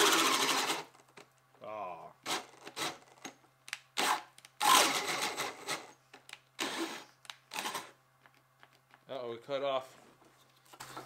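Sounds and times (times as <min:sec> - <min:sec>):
drill boring into wood: 0:00.0 - 0:00.9, 0:04.0 - 0:05.9, 0:06.6 - 0:07.9.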